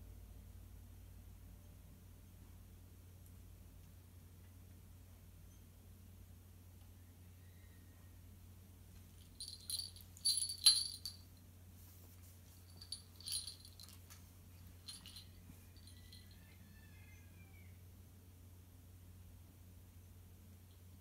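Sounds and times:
collar tags jingling: 9.2s - 11.4s, 12.6s - 16.4s.

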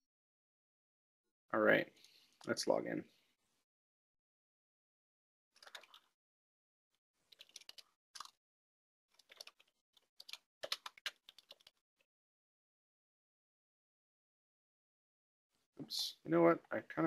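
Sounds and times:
typing on computer keyboard: 5.6s - 6.1s, 7.3s - 8.4s, 9.2s - 11.8s.

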